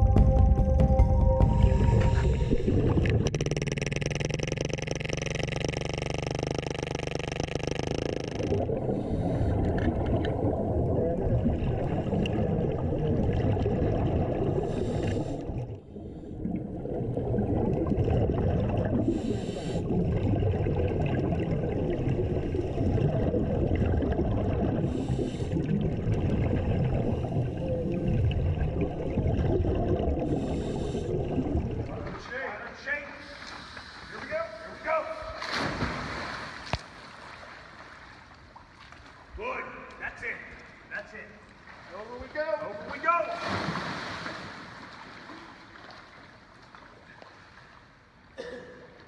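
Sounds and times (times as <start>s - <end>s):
bubbling helmet exhaust: 1.4s - 32.0s
underwater jackhammer: 1.4s - 32.5s
breathing hiss: 14.7s - 16.3s, 19.1s - 19.9s, 24.9s - 25.7s, 30.3s - 31.2s.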